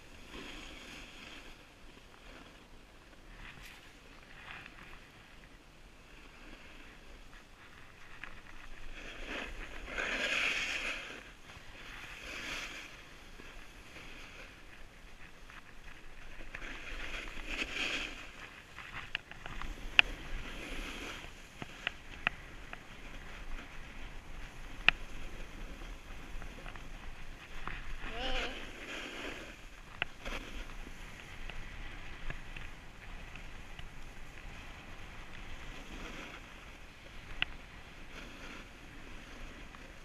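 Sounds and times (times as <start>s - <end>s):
ski edges scraping snow: 0.0s - 40.0s
wind on microphone: 0.0s - 40.0s.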